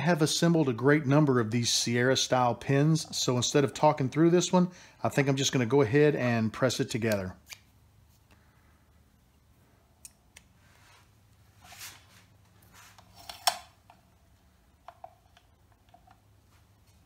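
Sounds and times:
soft rustle: 0:10.6 - 0:13.4.

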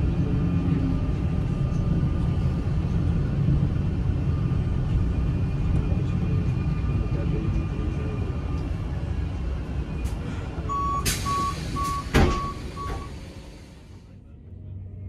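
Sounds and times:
steady low rumble: 0:00.0 - 0:15.0
short high warning beeps: 0:10.7 - 0:13.2
train door shutting thump: 0:11.0 - 0:13.4.

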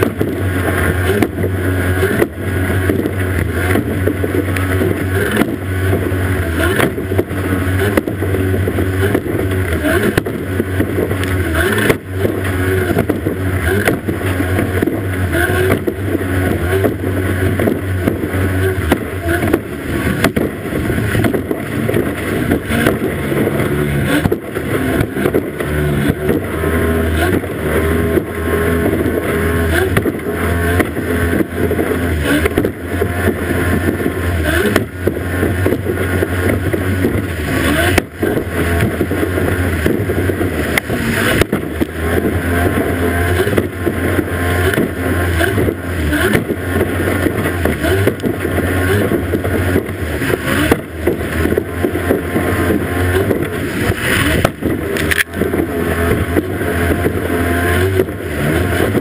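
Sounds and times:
hull slamming over waves: 0:00.0 - 0:59.0
outboard motor running flat out: 0:00.0 - 0:59.0
rush of spray and water: 0:00.0 - 0:59.0.

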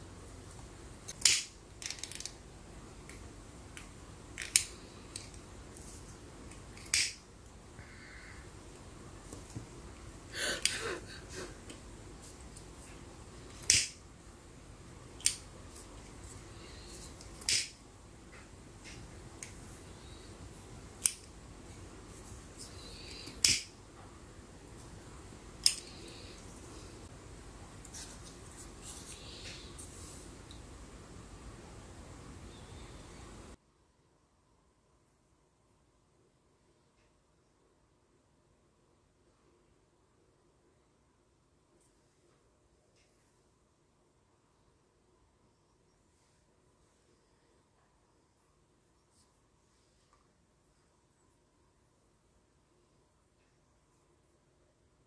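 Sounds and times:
sharp crisp snaps: 0:06.5 - 0:07.6, 0:13.5 - 0:14.0, 0:17.2 - 0:17.8, 0:23.1 - 0:23.8, 0:25.6 - 0:26.2.

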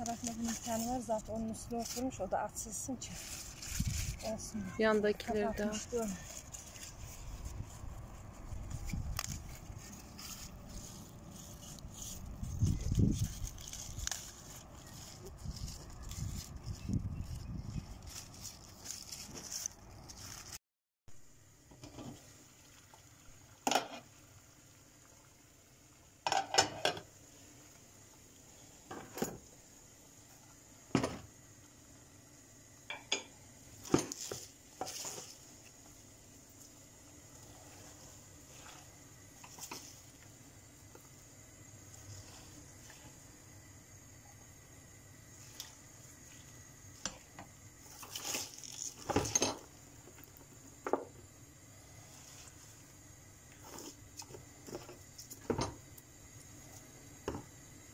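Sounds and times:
pots and lids clinking: 0:26.3 - 0:27.1, 0:32.9 - 0:34.2, 0:49.0 - 0:49.7.

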